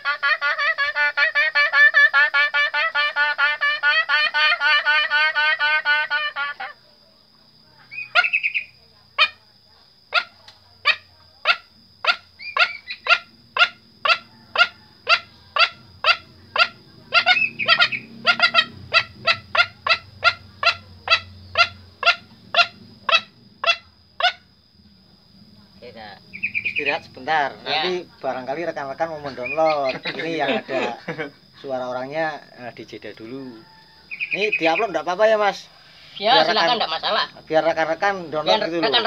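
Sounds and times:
man imitating bird clucks: 0.0s - 6.8s.

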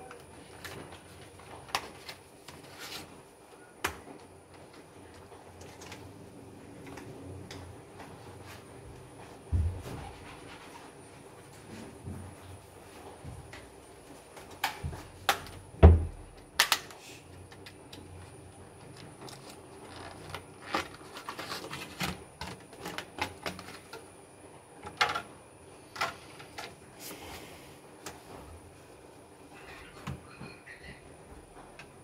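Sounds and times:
plastic packaging clicking and crackling: 0.0s - 3.2s, 3.8s - 6.2s, 16.3s - 24.1s.

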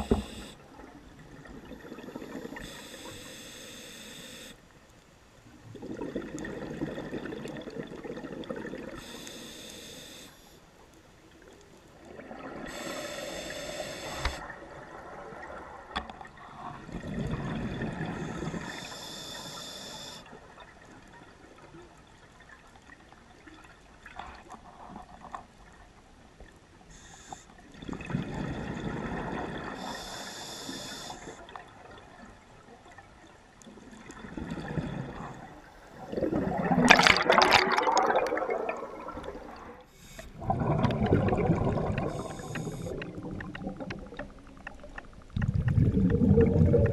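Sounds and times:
regulator hissing inhalations: 0.0s - 0.6s, 2.4s - 4.6s, 9.0s - 10.6s, 12.7s - 14.5s, 18.5s - 20.3s, 26.9s - 27.5s, 29.8s - 31.4s, 39.9s - 40.4s, 42.0s - 43.1s
bubbling gurgling exhalations: 5.8s - 9.0s, 34.2s - 39.8s, 40.4s - 44.4s, 45.4s - 46.9s.

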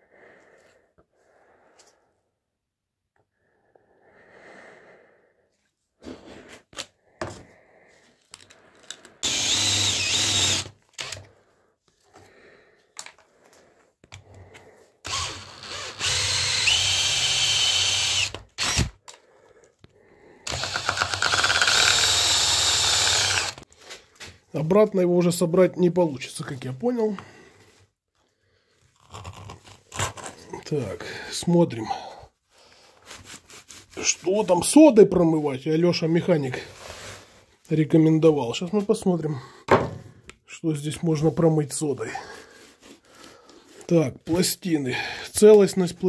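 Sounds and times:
cordless drill whining: 9.2s - 11.4s, 15.0s - 19.2s, 20.5s - 23.7s.

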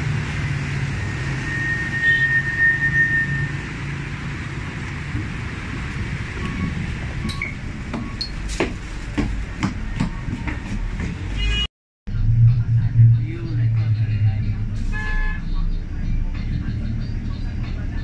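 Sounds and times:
bus engine rumbling: 0.0s - 18.0s
passengers knocking and thumping: 5.1s - 11.4s.

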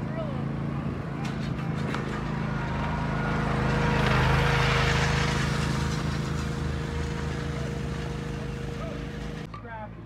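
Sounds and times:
motor humming: 1.9s - 9.5s.

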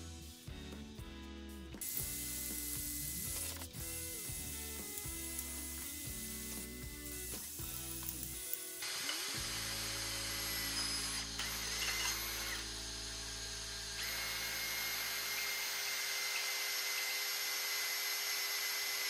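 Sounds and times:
cordless drill boring into metal: 1.8s - 19.0s.

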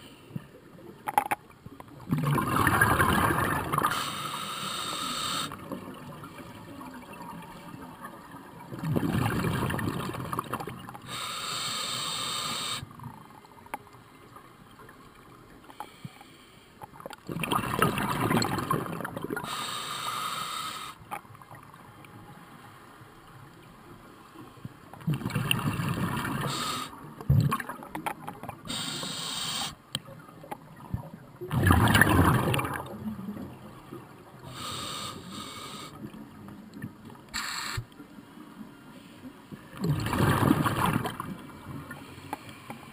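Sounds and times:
exhaled bubbles gurgling underwater: 1.9s - 13.3s, 17.0s - 19.8s, 25.0s - 29.2s, 30.1s - 37.3s, 39.6s - 42.2s
regulator inhale hiss: 3.9s - 5.6s, 11.0s - 12.9s, 15.7s - 16.8s, 19.4s - 21.0s, 26.4s - 27.0s, 28.7s - 29.8s, 34.4s - 36.0s, 37.3s - 37.9s.

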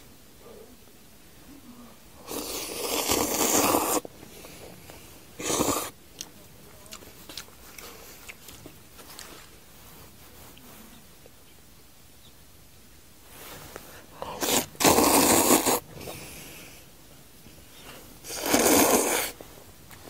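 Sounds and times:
noodles slurped: 2.2s - 4.1s, 5.4s - 6.0s, 14.2s - 15.8s, 18.2s - 19.4s
faint chewing: 2.3s - 11.4s, 17.5s - 20.0s.

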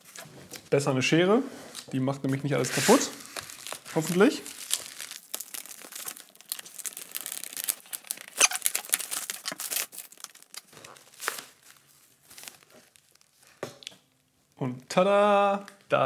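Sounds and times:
plastic film crinkling: 1.8s - 14.6s
scissors cutting plastic film: 2.8s - 11.6s.

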